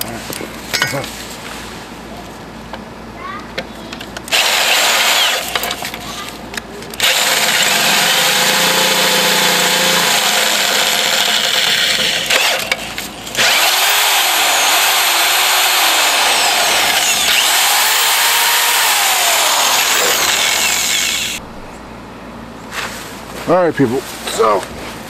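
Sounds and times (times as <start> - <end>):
electric drill boring into steel: 4.3 - 5.7, 7.0 - 21.4.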